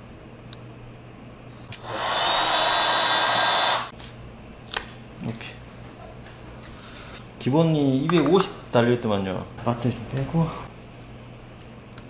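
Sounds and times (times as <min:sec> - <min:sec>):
small electric tool whining: 0:01.7 - 0:03.9.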